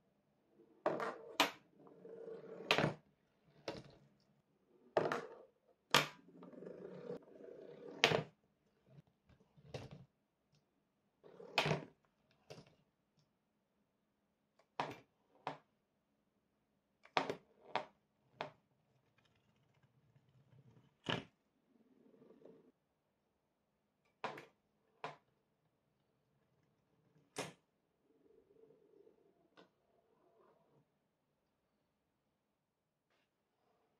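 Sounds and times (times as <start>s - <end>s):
balls rolling on cardboard tracks: 0.7s - 10.1s, 11.2s - 12.8s.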